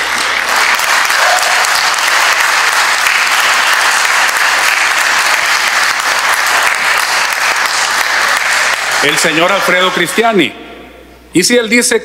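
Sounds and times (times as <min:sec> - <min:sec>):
crowd applauding: 0:00.0 - 0:10.4.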